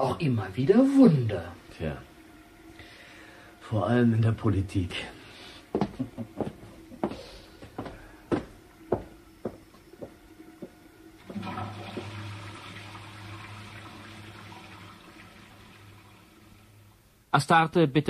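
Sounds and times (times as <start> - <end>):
toilet flushing: 10.2 - 17.3.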